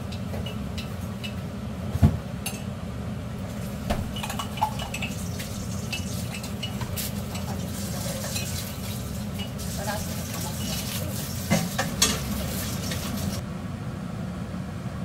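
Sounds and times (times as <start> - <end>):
stockpot boiling: 3.3 - 13.4.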